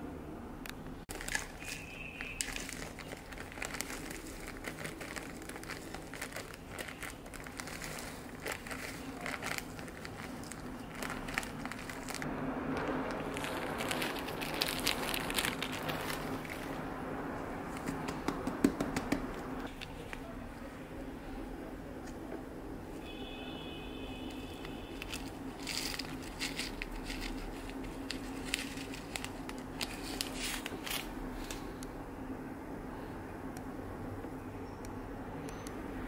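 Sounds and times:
plastic bag crinkling: 0:01.1 - 0:16.8, 0:17.6 - 0:20.7, 0:24.2 - 0:31.7.

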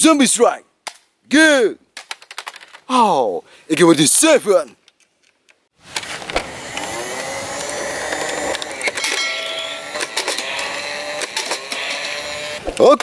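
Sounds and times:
toy rifle motor whirr: 0:06.3 - 0:09.0, 0:09.8 - 0:12.6.

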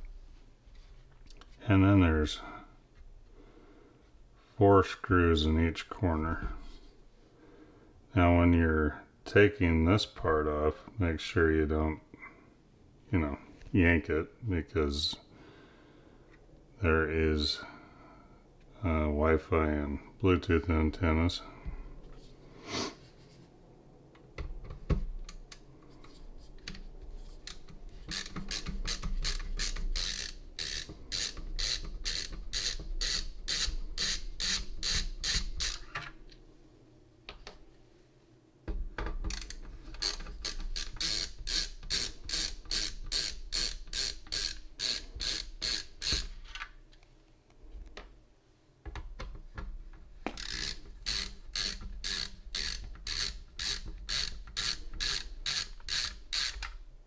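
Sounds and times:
screwdriver ratchet clicking: 0:27.5 - 0:36.0, 0:39.3 - 0:46.3, 0:50.3 - 0:56.8.

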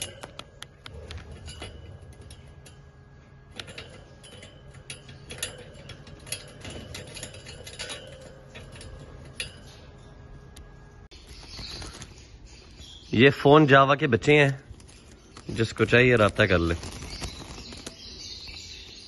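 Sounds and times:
bird cage wire rattling: 0:00.0 - 0:10.5, 0:11.1 - 0:12.6, 0:14.2 - 0:19.0
low hum: 0:00.0 - 0:12.8.

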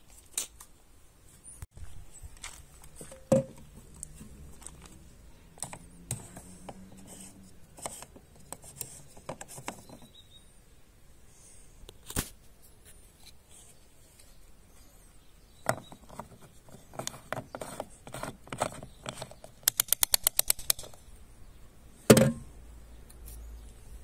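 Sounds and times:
fuel cap ratchet clicks: 0:19.6 - 0:21.0.

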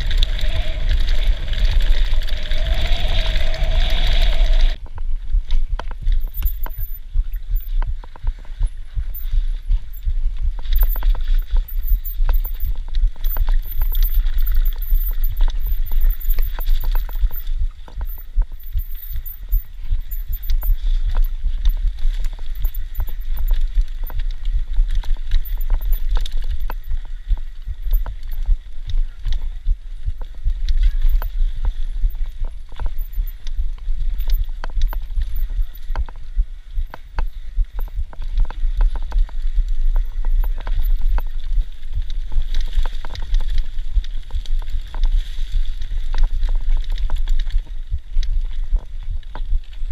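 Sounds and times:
bike parts rattling and knocking: 0:10.6 - 0:21.4.

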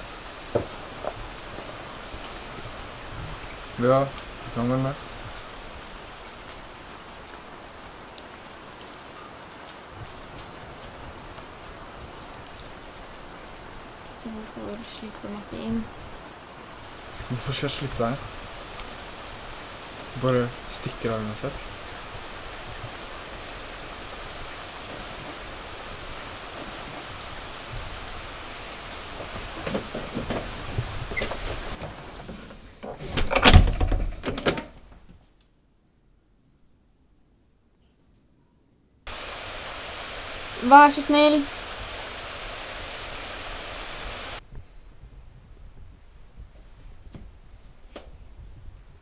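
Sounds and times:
raindrops ticking on surfaces: 0:00.0 - 0:32.4, 0:39.1 - 0:45.1
steady rain: 0:00.0 - 0:35.0, 0:39.1 - 0:49.0
soft knocks and thumps: 0:00.5 - 0:01.8, 0:29.2 - 0:35.2.

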